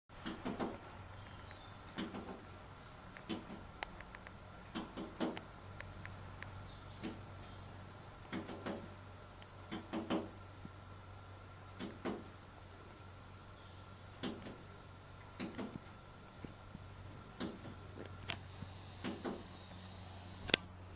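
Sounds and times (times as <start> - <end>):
bird tapping on window glass: 8.2 - 10.3.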